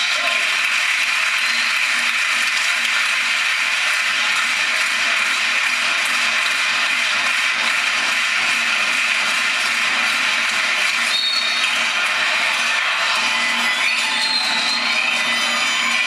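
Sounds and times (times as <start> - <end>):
referee's whistle: 1.4 - 1.7, 11.1 - 11.7, 13.7 - 15.2
crowd din: 9.1 - 16.0.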